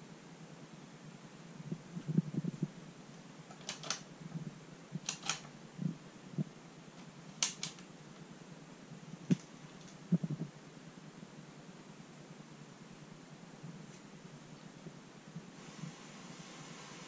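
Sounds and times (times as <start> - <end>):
push-button keys clicking: 3.5 - 4.0, 5.0 - 5.5, 7.4 - 7.8
soft low thumps: 10.1 - 10.6.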